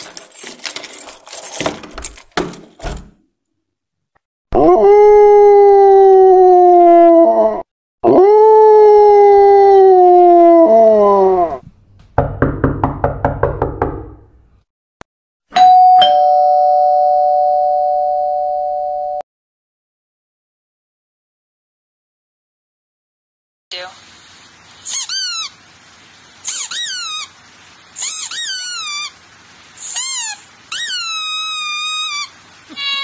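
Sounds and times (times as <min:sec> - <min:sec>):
long howls sinking in pitch: 0:04.6 - 0:11.6
two-tone doorbell chime: 0:15.5 - 0:19.2.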